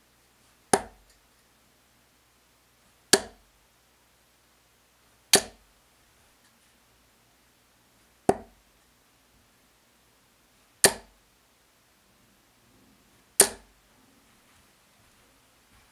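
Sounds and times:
darts striking dartboard: 0.8s - 1.0s, 3.1s - 3.4s, 5.3s - 5.6s, 8.3s - 8.6s, 10.8s - 11.1s, 13.4s - 13.7s.

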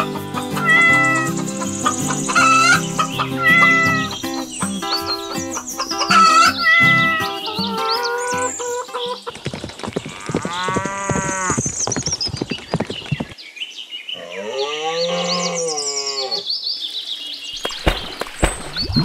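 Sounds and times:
high chirping: 0.1s - 9.3s
sharp knocks: 17.6s - 19.0s.

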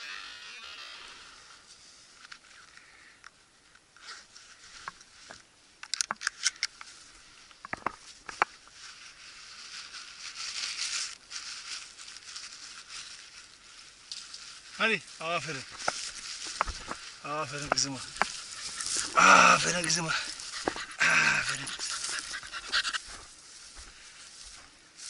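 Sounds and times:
footsteps through dry grass: 6.8s - 25.0s.

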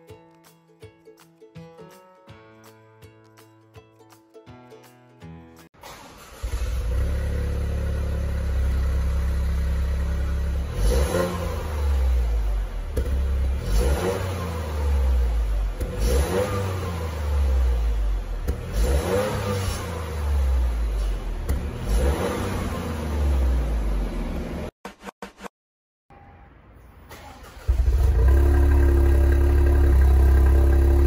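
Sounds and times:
car engine idling and revving: 5.8s - 24.8s, 27.2s - 31.0s.

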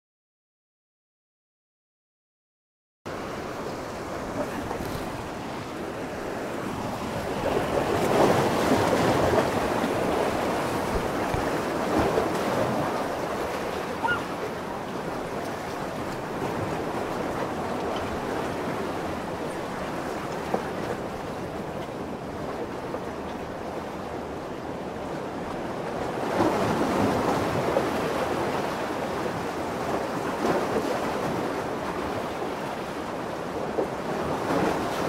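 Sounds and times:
lake waves washing in: 3.1s - 35.0s
wind on microphone: 4.1s - 21.4s.

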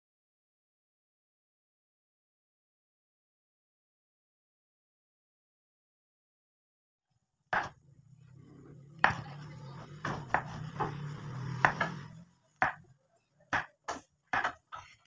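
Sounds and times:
knife cutting beans on wooden board: 9.0s - 12.8s.

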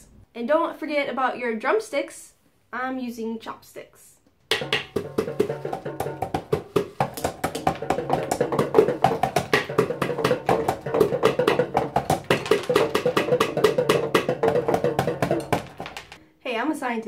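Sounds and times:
chopsticks drumming on homemade drums: 4.5s - 16.2s.

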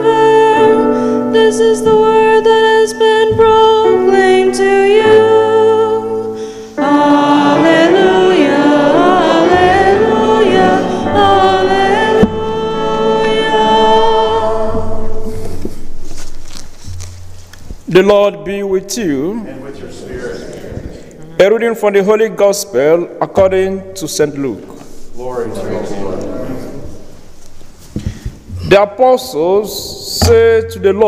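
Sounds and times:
person singing with vibrato: 0.0s - 16.0s
keyboard sustained chords: 0.0s - 20.5s.

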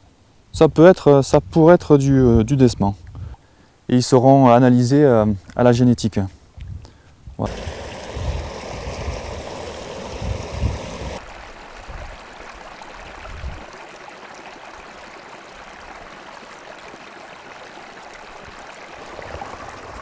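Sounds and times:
stream water flowing: 7.4s - 20.0s.

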